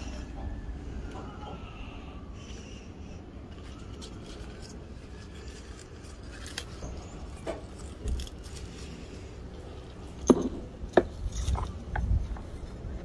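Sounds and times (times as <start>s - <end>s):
clicks and knocks picking peppers: 3.4s - 13.0s.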